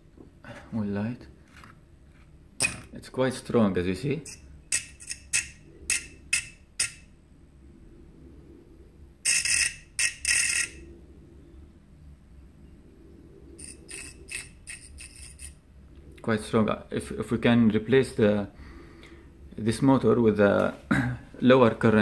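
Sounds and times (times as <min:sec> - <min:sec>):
faint low hum: 0:00.0 - 0:22.0
fingers scraping spinning fan: 0:04.2 - 0:07.1, 0:09.2 - 0:10.9, 0:13.2 - 0:15.7.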